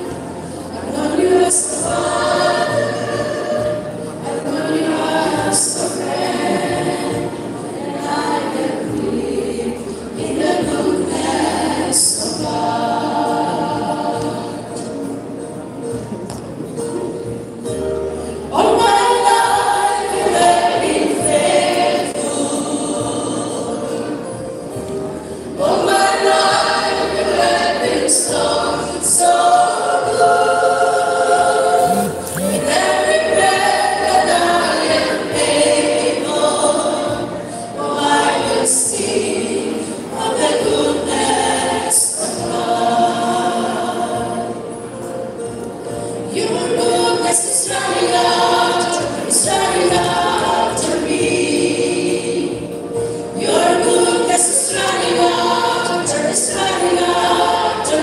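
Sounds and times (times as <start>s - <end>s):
women's choir singing: 0.0s - 16.0s, 18.4s - 58.0s
electronic keyboard: 31.4s - 33.5s.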